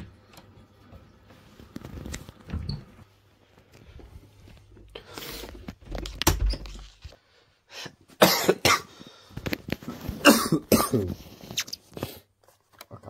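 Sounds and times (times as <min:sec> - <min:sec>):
man coughing harshly: 0:08.2 - 0:08.9, 0:10.2 - 0:11.2.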